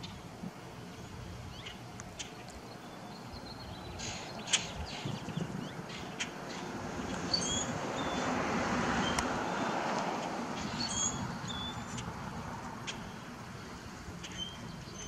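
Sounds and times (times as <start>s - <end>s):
small birds chirping: 0.9s - 8.3s, 10.6s - 12.1s, 14.1s - 15.0s.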